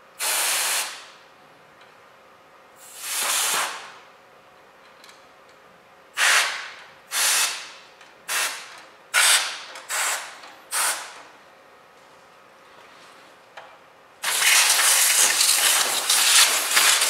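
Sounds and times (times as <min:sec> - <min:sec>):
compressed air hissing: 0:00.2 - 0:01.0, 0:02.8 - 0:03.8, 0:06.2 - 0:07.6.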